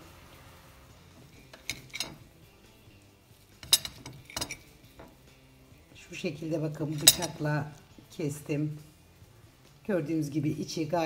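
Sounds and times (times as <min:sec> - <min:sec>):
knife clinking against a plate: 0:03.6 - 0:05.2, 0:06.9 - 0:07.5.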